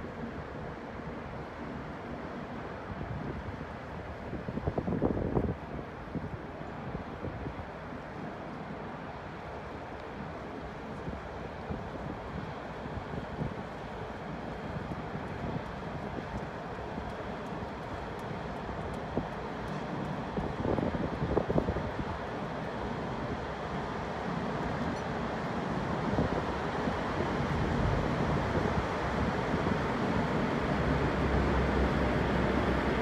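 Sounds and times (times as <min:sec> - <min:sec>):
traffic rumble: 0:24.6 - 0:33.0.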